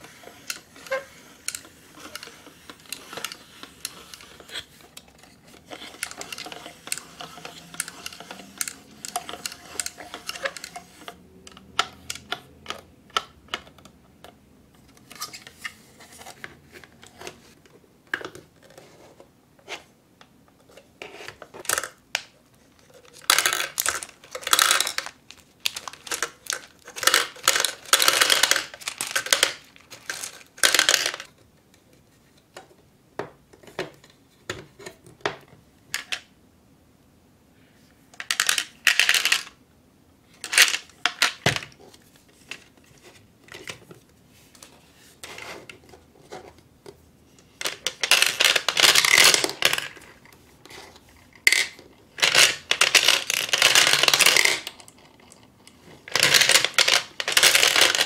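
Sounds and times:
candy balls rattling into plastic drum: 0:00.0 - 0:11.1, 0:23.2 - 0:31.3, 0:38.2 - 0:39.6, 0:47.6 - 0:50.2, 0:51.4 - 0:55.0, 0:56.0 - 0:58.0
small plastic parts clicking: 0:00.0 - 0:15.5, 0:21.4 - 0:31.3, 0:47.6 - 0:58.0.

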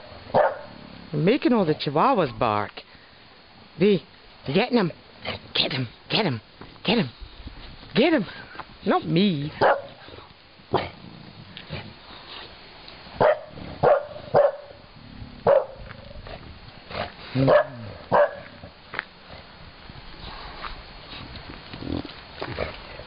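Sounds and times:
dog barking: 0:00.3 - 0:00.8, 0:09.6 - 0:10.0, 0:13.2 - 0:14.8, 0:15.5 - 0:15.8, 0:17.4 - 0:18.5.

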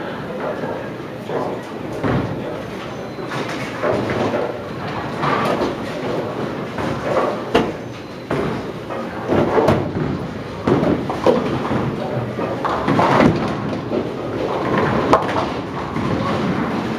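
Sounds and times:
murmured voices: 0:00.0 - 0:05.0
bowling alley rumble: 0:00.0 - 0:16.9
bowling balls and pins clattering: 0:00.2 - 0:16.9.

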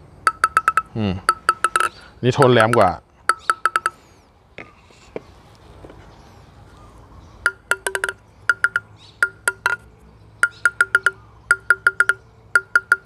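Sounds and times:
ball tapping on paddle blade: 0:00.2 - 0:04.0, 0:07.4 - 0:13.0.

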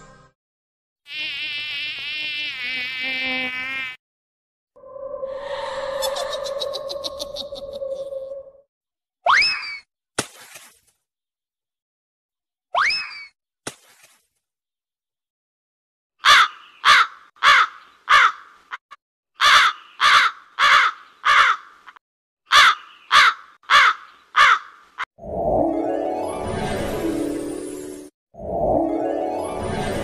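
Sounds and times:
crow cawing: 0:16.2 - 0:18.5, 0:19.4 - 0:24.8.

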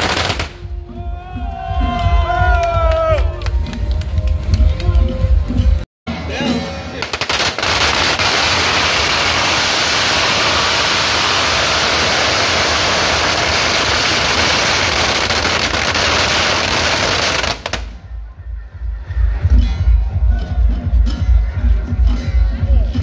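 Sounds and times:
firecrackers crackling: 0:00.0 - 0:00.7, 0:07.0 - 0:18.0.

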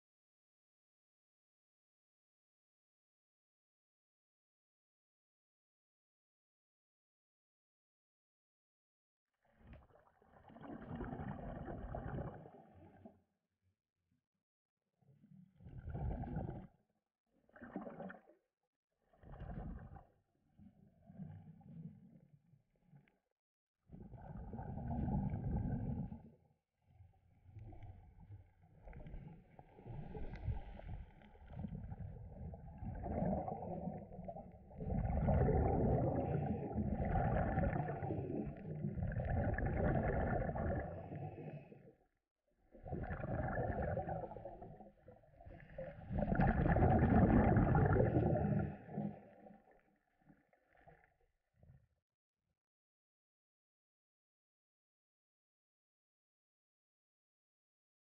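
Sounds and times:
underwater bubbles gurgling: 0:09.5 - 0:13.2, 0:15.2 - 0:16.8, 0:17.4 - 0:18.4, 0:19.0 - 0:22.1, 0:23.9 - 0:26.4, 0:27.0 - 0:42.1, 0:42.7 - 0:51.9.

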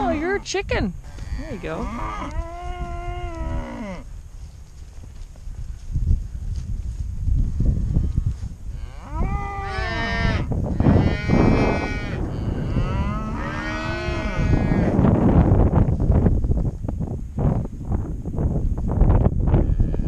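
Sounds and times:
cattle mooing: 0:00.0 - 0:04.0, 0:08.8 - 0:15.0.

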